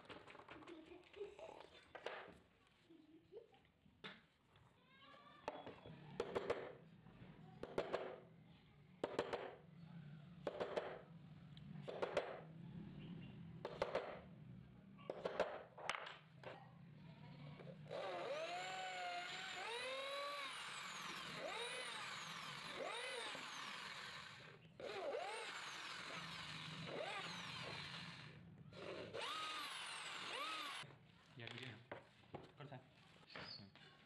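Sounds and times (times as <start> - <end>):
electric drill boring into wood: 17.6 - 30.8.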